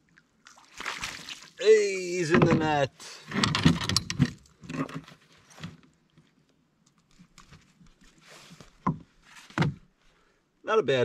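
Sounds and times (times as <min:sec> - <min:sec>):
fish rustling and splashing: 0:00.0 - 0:01.6.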